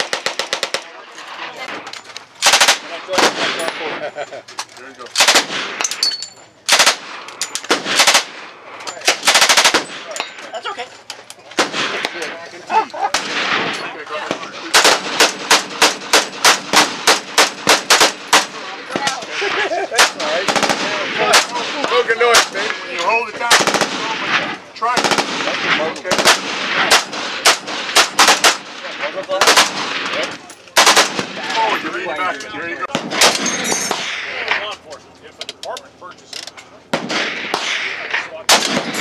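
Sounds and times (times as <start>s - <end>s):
rifle firing rapid shots: 0.0s - 0.9s, 2.4s - 3.8s, 5.2s - 5.8s, 6.7s - 10.2s, 14.3s - 19.2s, 20.0s - 22.6s, 23.4s - 28.7s, 29.4s - 30.2s, 30.8s - 31.4s, 38.5s - 39.0s.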